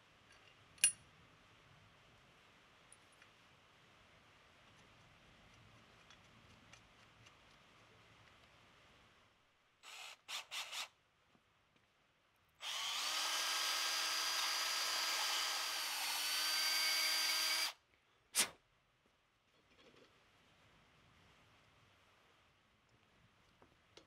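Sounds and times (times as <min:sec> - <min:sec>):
cordless drill motor running: 0:09.8 - 0:10.9, 0:12.6 - 0:17.8
short drill bursts: 0:09.8 - 0:10.9, 0:12.6 - 0:17.8.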